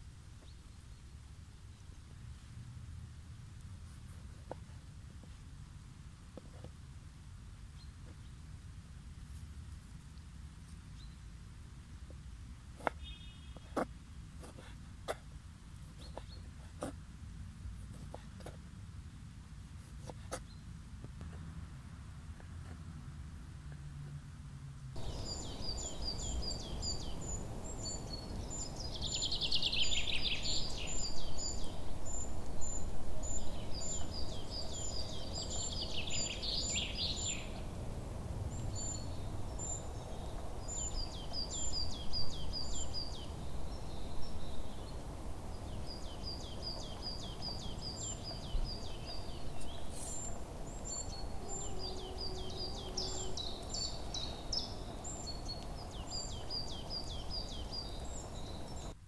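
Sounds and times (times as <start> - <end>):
low background noise: 0.0 - 59.0
small birds chirping: 12.0 - 17.0, 19.8 - 20.7, 25.0 - 59.0.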